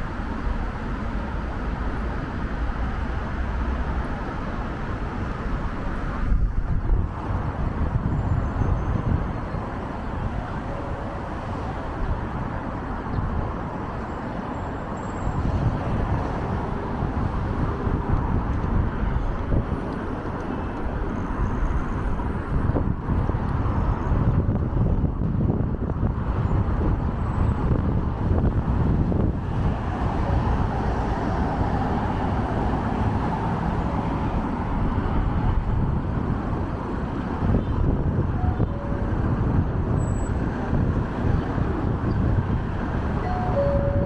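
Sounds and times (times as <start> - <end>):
passing cars: 0.0 - 44.0.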